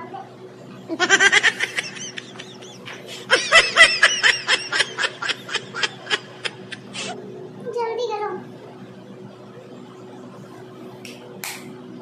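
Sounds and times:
high-pitched giggling laughter: 0.9s - 7.2s.

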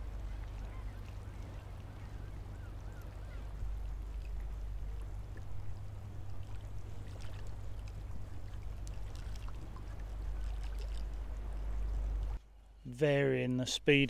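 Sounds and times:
water trickling and lapping: 0.0s - 12.9s
steady low rumble: 0.0s - 14.0s
small ticks and splashes: 2.9s - 12.4s.

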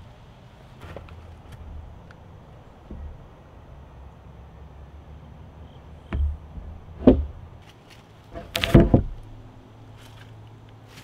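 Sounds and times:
timber joists knocking onto wood: 2.8s - 3.6s, 5.9s - 7.6s, 8.3s - 9.5s.

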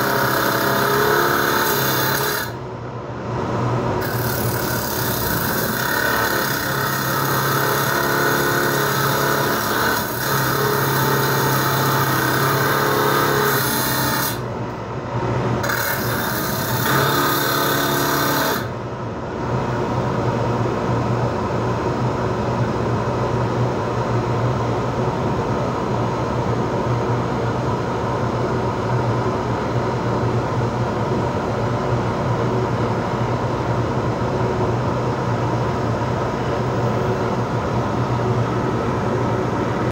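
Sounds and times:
cut-off wheel grinding copper wire: 0.0s - 2.6s, 4.0s - 14.4s, 15.6s - 18.7s.

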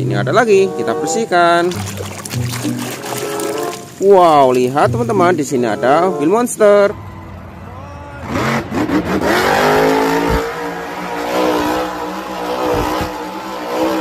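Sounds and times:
truck engine revving hard: 5.9s - 14.0s
low thumps: 8.2s - 10.8s.

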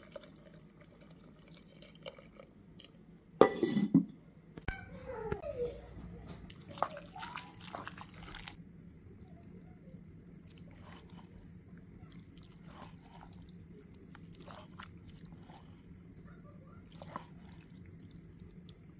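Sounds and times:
steady low hum: 8.4s - 18.9s
wooden spoon stirring pasta: 10.4s - 18.9s.

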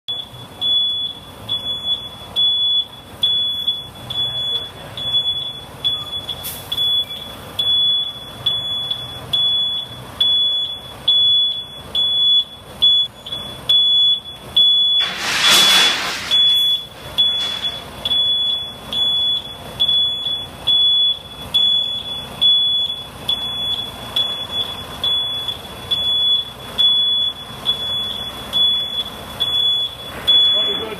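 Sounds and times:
vehicle backup alarm beeping: 0.1s - 30.9s
low engine rumble: 0.2s - 30.9s
loud hiss: 15.0s - 16.8s.

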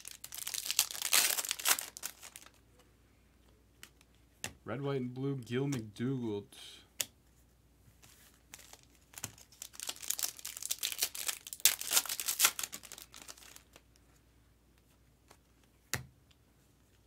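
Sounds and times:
foil wrapper tearing and crinkling: 0.0s - 2.6s, 8.5s - 13.8s.

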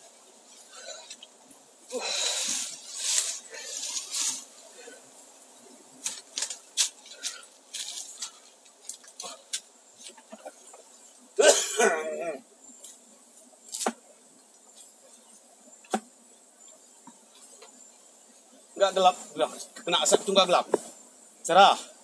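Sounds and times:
fire crackling and snapping: 5.9s - 11.3s
person coughing: 11.4s - 12.4s.

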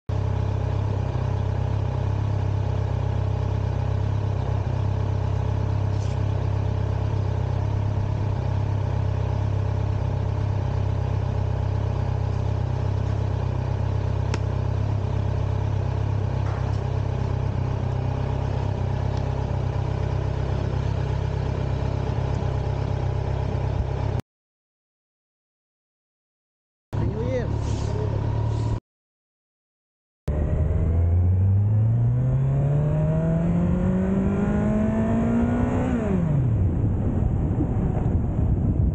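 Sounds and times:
motorcycle engine idling: 0.1s - 24.2s.

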